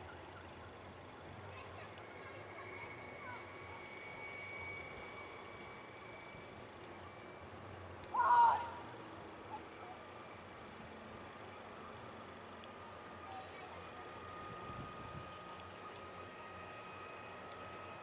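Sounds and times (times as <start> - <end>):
faint steady tone: 0.0 - 18.0.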